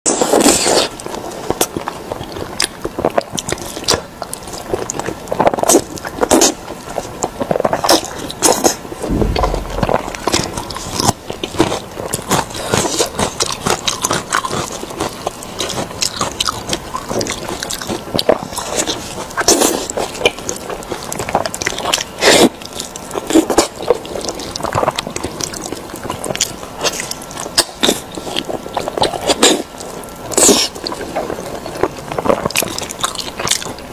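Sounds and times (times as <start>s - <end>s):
low bump: 9.1s - 11.5s.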